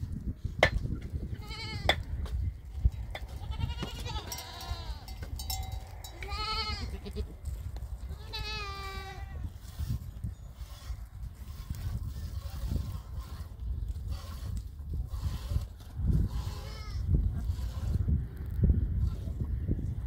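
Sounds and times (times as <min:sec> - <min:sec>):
goats bleating: 0:03.3 - 0:05.2, 0:06.0 - 0:07.4, 0:08.2 - 0:09.5.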